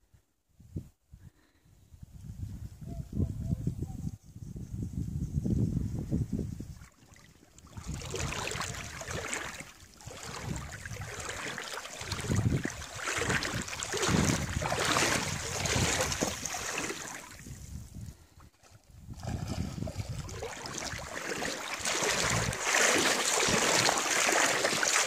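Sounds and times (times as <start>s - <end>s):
wind buffeting microphone: 0.6s - 24.1s
river water rushing: 20.6s - 25.0s.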